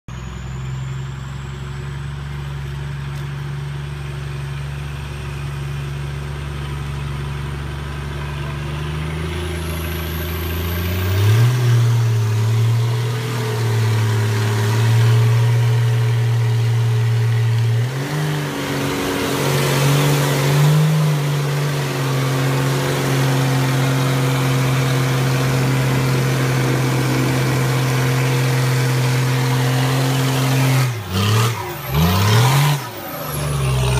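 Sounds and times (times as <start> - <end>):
truck engine pulling under load: 17.5 - 33.9.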